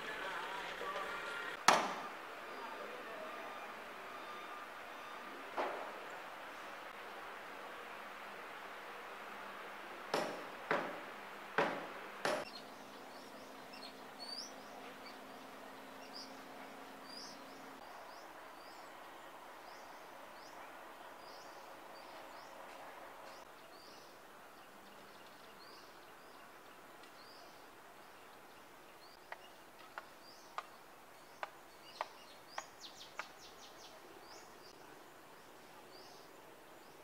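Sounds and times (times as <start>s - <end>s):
sharp knocks: 1.6s - 2.1s, 10.1s - 12.5s.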